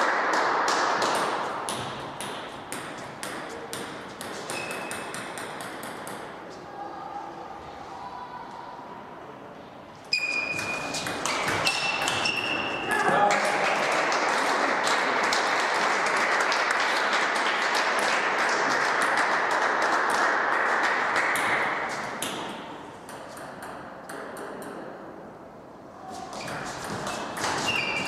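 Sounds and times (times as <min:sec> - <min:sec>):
spectators clapping: 0:13.0 - 0:21.7.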